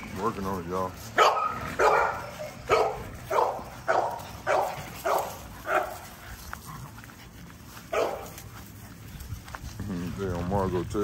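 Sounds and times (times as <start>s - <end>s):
dog barking: 1.2s - 6.1s, 7.9s - 8.4s.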